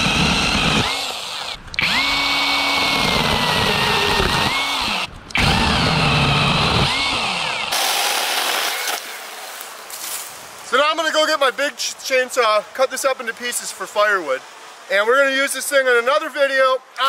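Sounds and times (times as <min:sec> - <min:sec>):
mini chainsaw motor whine: 0:00.0 - 0:09.1.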